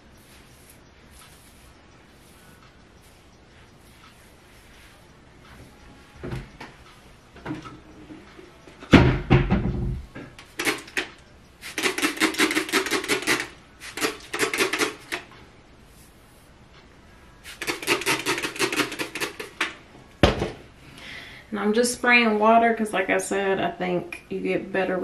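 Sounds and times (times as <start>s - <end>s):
spray bottle spritzing water: 11.6s - 15.1s.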